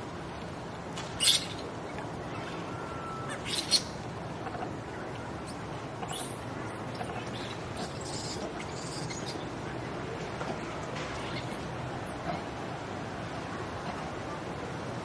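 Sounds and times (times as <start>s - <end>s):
baby monkey squealing: 1.2s - 1.6s, 3.3s - 3.9s, 6.1s - 6.4s, 7.3s - 9.4s.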